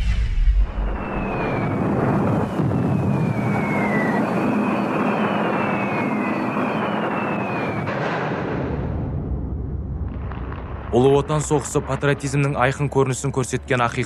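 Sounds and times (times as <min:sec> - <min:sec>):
aircraft engine drone: 0:00.0 - 0:08.3
falling bomb whistles: 0:00.0 - 0:09.2.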